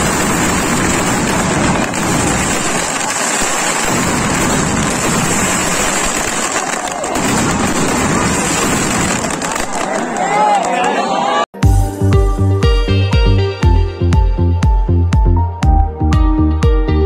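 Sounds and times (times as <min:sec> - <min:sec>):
fireworks going off: 0:00.0 - 0:10.9.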